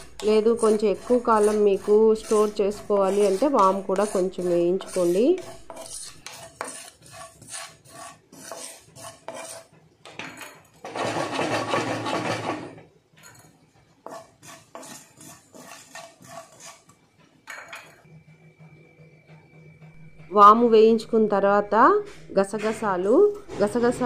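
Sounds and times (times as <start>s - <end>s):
spatula scraping seeds in a pan: 0.0s - 17.0s.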